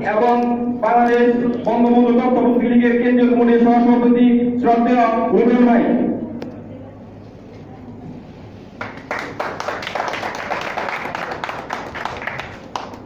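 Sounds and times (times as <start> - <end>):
small group applauding: 0.2 - 2.0, 8.7 - 13.0.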